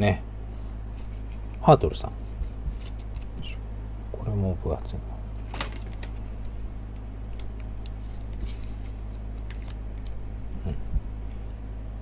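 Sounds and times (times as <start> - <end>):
steady low hum: 0.0 - 12.0
plastic sleeve crinkling and clicking: 6.9 - 11.6.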